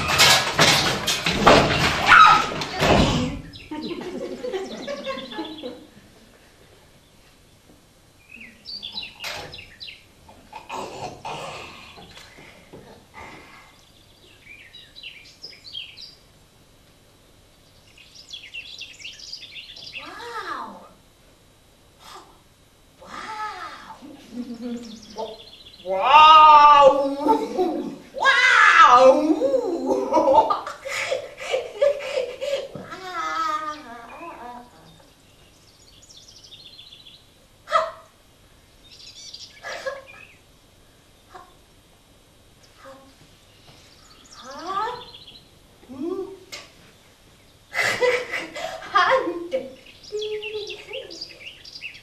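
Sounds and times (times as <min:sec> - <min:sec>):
birds chirping: 0:00.0 - 0:16.5, 0:17.2 - 0:21.6, 0:24.1 - 0:27.9, 0:33.4 - 0:52.0
bird-like chirping: 0:08.2 - 0:10.1, 0:17.6 - 0:20.1, 0:38.8 - 0:40.5, 0:43.5 - 0:45.5, 0:49.7 - 0:52.0.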